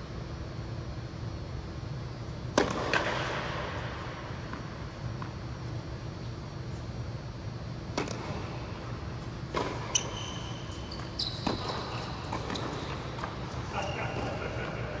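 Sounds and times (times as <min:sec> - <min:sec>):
tennis ball hit and bouncing: 0:02.4 - 0:03.6, 0:07.8 - 0:08.6, 0:09.4 - 0:10.0
court shoes squeaking: 0:04.3 - 0:15.0.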